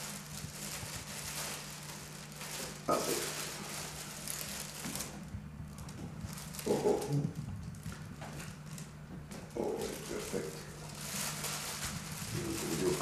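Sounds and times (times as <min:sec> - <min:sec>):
bag rustling and crinkling: 0:00.0 - 0:13.0
low hum: 0:00.0 - 0:13.0.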